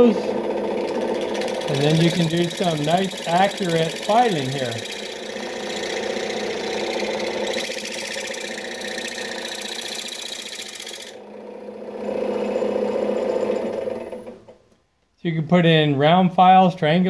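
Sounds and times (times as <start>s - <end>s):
machine hum: 0.0s - 14.7s
file rasping against metal: 0.9s - 11.2s.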